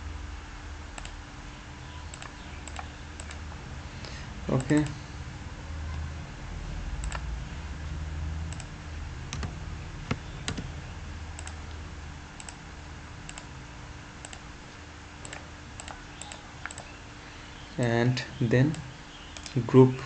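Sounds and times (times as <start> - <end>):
low hum and hiss: 0.0 - 20.0
computer mouse clicking: 1.0 - 1.2, 2.1 - 3.4, 7.0 - 7.3, 8.5 - 8.7, 11.4 - 11.8, 12.4 - 12.6, 13.3 - 13.5, 14.2 - 14.4, 15.2 - 16.9.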